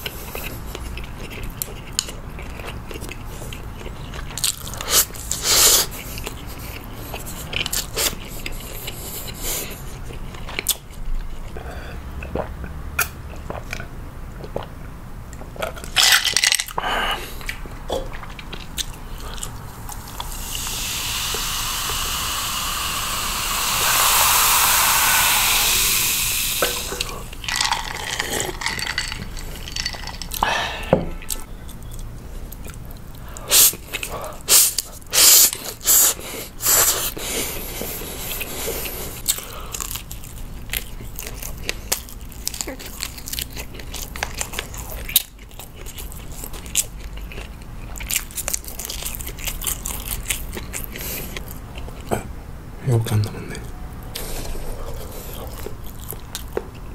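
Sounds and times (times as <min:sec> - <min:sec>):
close chewing: 0:00.0 - 0:16.0, 0:16.6 - 0:30.4, 0:31.2 - 0:52.2, 0:53.6 - 0:56.9
cola fizzing as poured: 0:20.0 - 0:30.4
crisp crunches of biting: 0:39.2 - 0:52.1.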